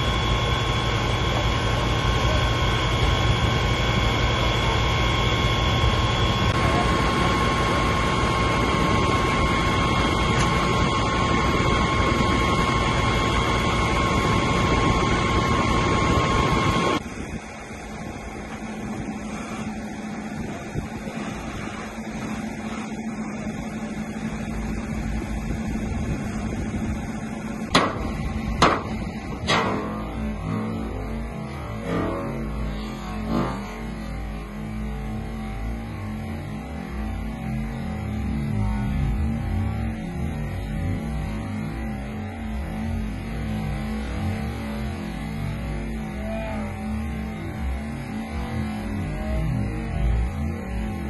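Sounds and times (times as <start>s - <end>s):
fire engine running: 0.0s - 51.0s
high mechanical whine: 0.0s - 51.0s.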